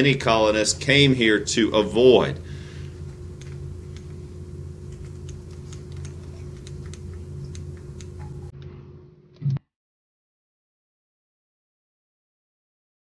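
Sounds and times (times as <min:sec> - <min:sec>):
low electrical hum: 0:00.0 - 0:09.6.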